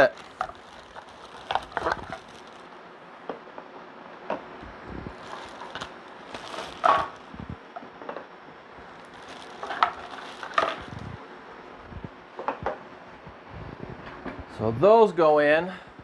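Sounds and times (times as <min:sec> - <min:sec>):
plastic bag crinkling: 0:00.0 - 0:02.8, 0:05.1 - 0:07.4, 0:08.8 - 0:11.2.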